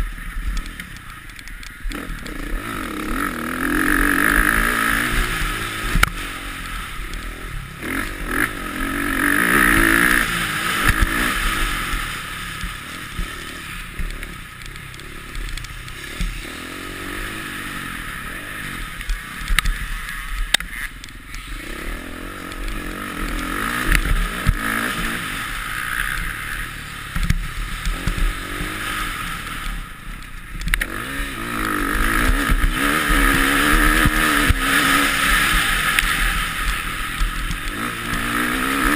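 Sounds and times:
sharp clicks and knocks: 0.0 - 3.2, 12.6 - 16.4, 19.0 - 21.4, 22.4 - 25.1, 30.1 - 38.9
motorbike engine revving: 0.0 - 38.9.

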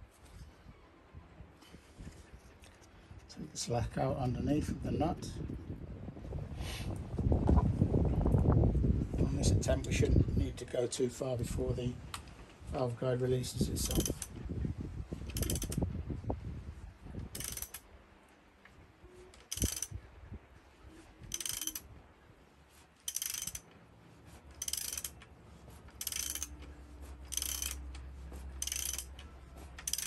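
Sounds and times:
socket ratchet clicking: 13.8 - 14.3, 15.3 - 15.8, 17.3 - 17.8, 19.4 - 20.0, 21.3 - 21.8, 23.1 - 23.7, 24.6 - 25.2, 25.9 - 26.6, 27.3 - 28.0, 28.6 - 30.0.

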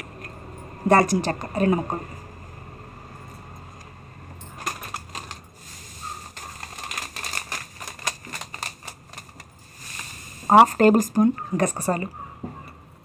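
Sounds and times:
dry bark clicking and crackling: 6.0 - 9.6.

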